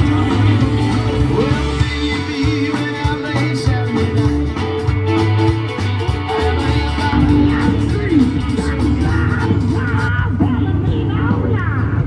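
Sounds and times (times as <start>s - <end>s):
rock band playing: 0.0s - 12.0s.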